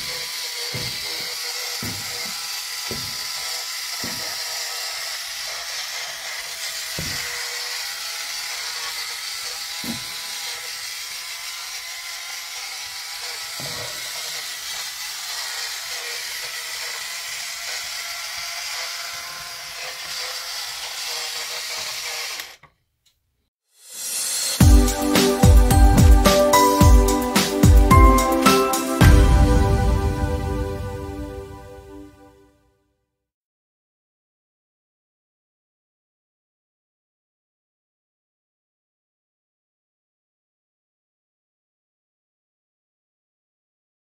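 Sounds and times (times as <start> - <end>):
toy car knocking: 0.0 - 11.6
toy car motor whirring: 0.0 - 22.7.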